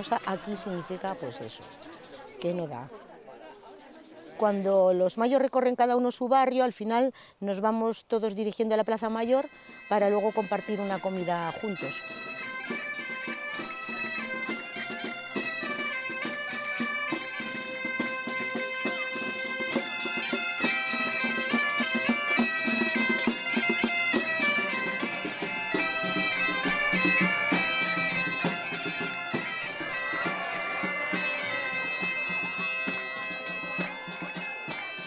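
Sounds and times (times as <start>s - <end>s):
bagpipe playing folk melody: 9.4s - 35.0s.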